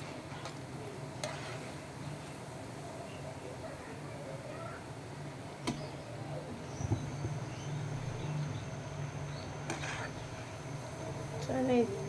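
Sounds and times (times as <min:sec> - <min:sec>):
chicken frying in hot oil: 0:00.0 - 0:05.4.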